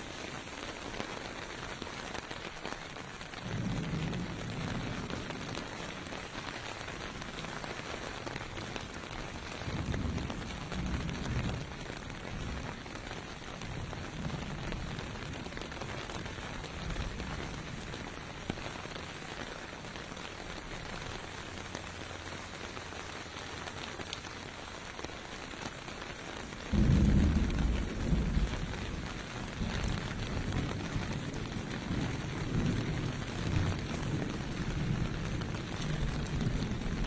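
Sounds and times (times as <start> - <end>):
rain falling on pavement: 0.0 - 37.0.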